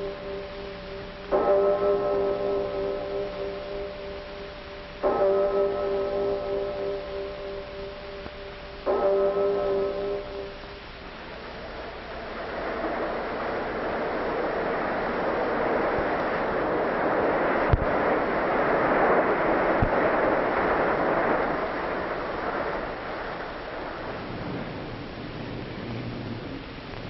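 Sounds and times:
bell-like ringing chord: 0.0 - 13.8
elevated train passing: 11.4 - 17.7.

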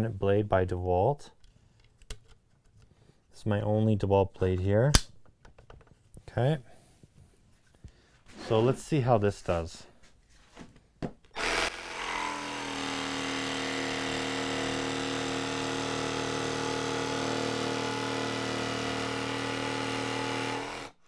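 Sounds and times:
jigsaw cutting board: 11.4 - 21.0.

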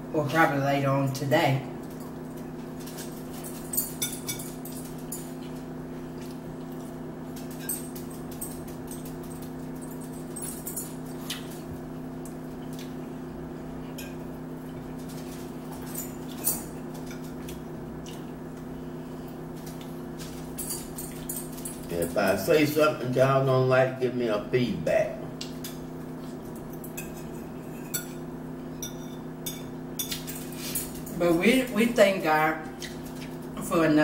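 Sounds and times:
steady low hum: 0.0 - 34.0
forks clicking and scraping plates: 2.8 - 11.6, 14.9 - 18.3, 19.6 - 22.6, 25.5 - 28.2, 28.8 - 32.2
chewing: 14.7 - 18.4.

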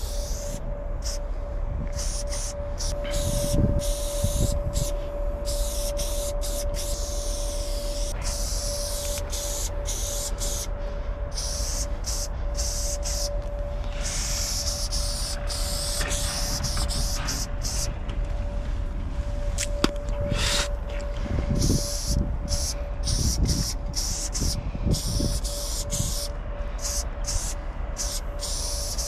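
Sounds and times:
spray paint can hissing: 0.0 - 1.2, 1.9 - 10.7, 11.3 - 13.4, 14.0 - 17.9, 20.3 - 20.8, 21.6 - 29.0
low rumble: 0.0 - 28.4
steady hum: 0.0 - 29.0.

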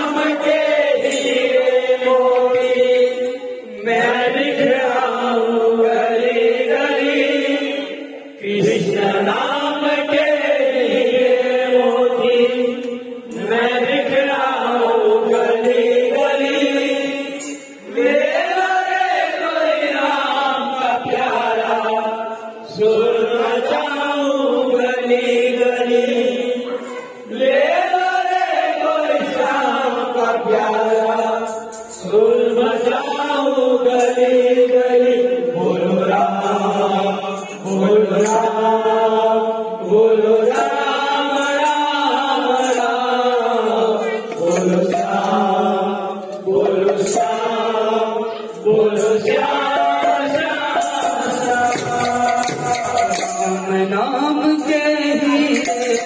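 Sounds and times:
voices chanting: 0.0 - 56.0
hand drum: 49.8 - 53.7
jingling metal clappers: 50.8 - 53.7, 55.2 - 56.0.

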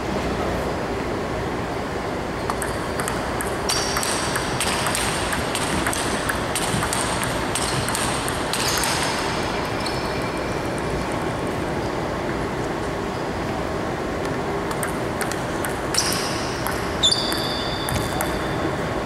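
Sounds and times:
ping-pong ball clicks: 2.4 - 10.9, 14.2 - 18.9.

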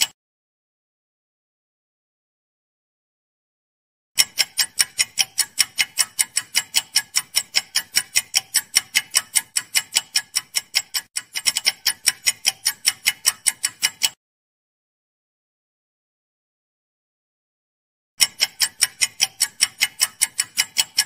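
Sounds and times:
clock ticking: 4.2 - 14.2, 18.2 - 21.0.

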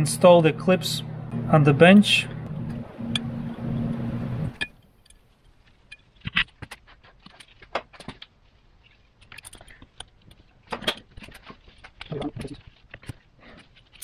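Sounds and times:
small metal parts clicking: 9.2 - 13.2.

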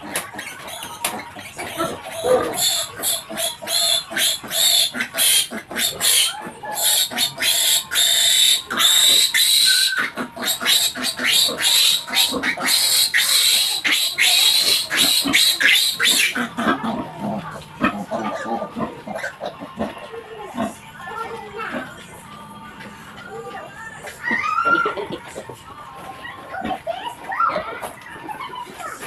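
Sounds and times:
piglet squealing: 0.0 - 20.0, 24.0 - 25.2.

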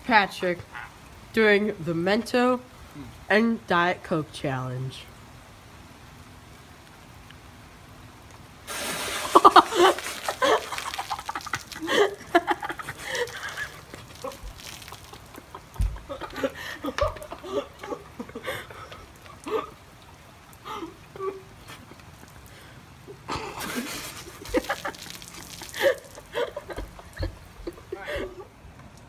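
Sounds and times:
soda fizzing and spraying: 8.6 - 16.6, 23.6 - 27.8
people laughing: 9.3 - 19.6, 23.3 - 28.5.

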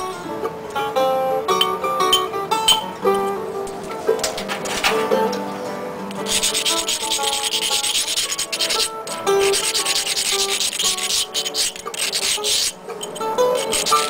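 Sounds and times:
guitar song: 0.0 - 7.7, 12.7 - 14.0
rasping scrape on stone blade: 6.2 - 14.0.

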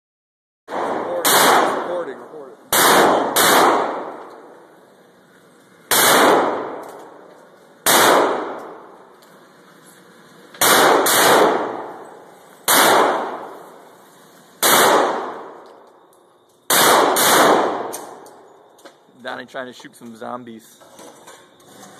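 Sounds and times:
pistol shots echoing indoors: 0.7 - 2.1, 2.7 - 4.5, 5.9 - 7.2, 7.8 - 9.0, 10.6 - 12.0, 12.7 - 13.6, 14.6 - 16.0, 16.7 - 18.4.

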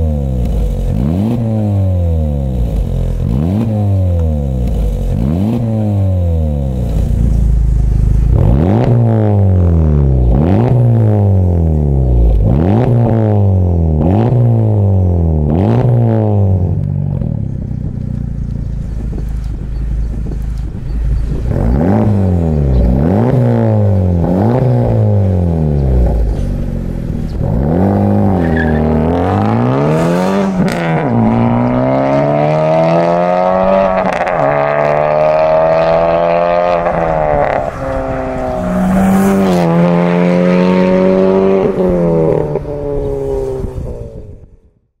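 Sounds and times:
car engine revving: 0.0 - 44.3
car accelerating through gears: 8.0 - 17.3, 21.4 - 44.1.

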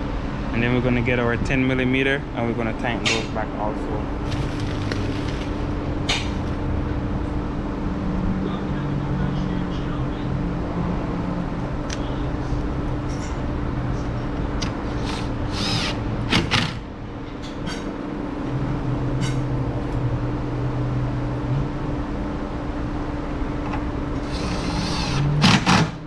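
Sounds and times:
cordless drill running: 4.2 - 5.7, 15.0 - 16.8, 24.2 - 25.2.

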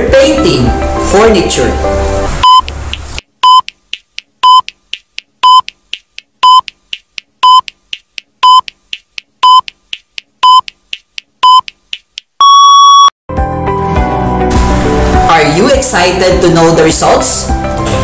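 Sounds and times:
short high electronic beep: 12.4 - 13.1.

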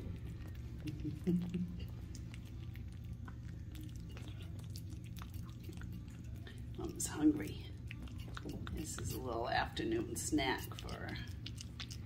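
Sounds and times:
cats chewing wet food: 0.0 - 12.0.

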